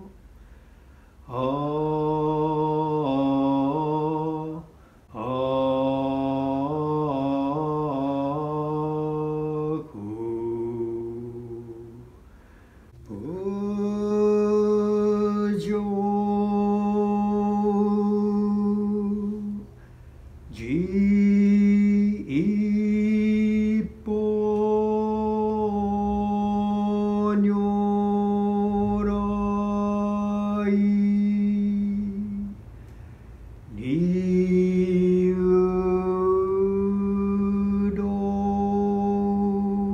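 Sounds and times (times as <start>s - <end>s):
person chanting long notes: 20.5s - 32.6s, 33.7s - 39.9s.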